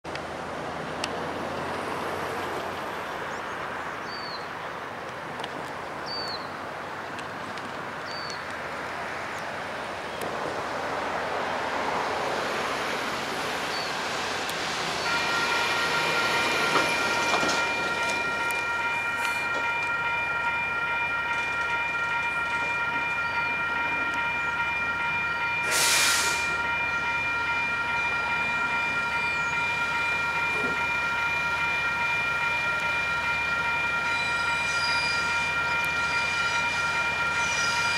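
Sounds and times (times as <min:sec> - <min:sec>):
diesel locomotive engine rumble: 0:00.1 - 0:37.9
high horn chord: 0:15.0 - 0:19.8.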